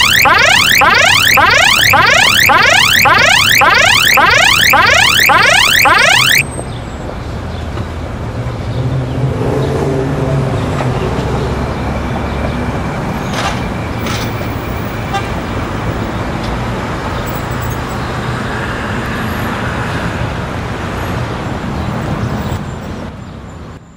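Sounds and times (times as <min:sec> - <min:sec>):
rising electronic chirps: 0:00.0 - 0:06.4
street traffic rumble: 0:06.2 - 0:23.9.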